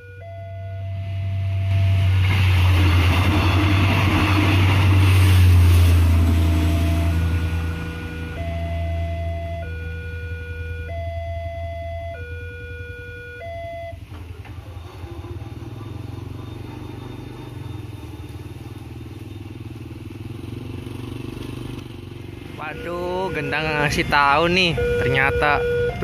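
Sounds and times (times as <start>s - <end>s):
two-tone level crossing alarm: 0.0s - 3.6s, 5.1s - 14.2s, 22.5s - 26.0s
motorcycle and car engines idling: 6.3s - 26.0s.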